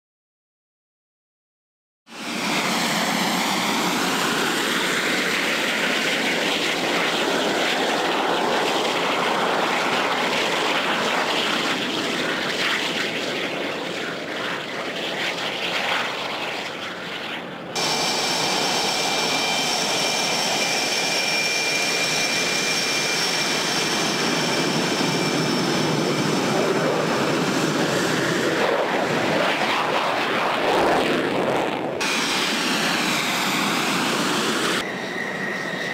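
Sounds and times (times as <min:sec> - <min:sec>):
jet engines at high power: 0:02.1 - 0:35.9
jet engines idling with whine: 0:02.1 - 0:35.9.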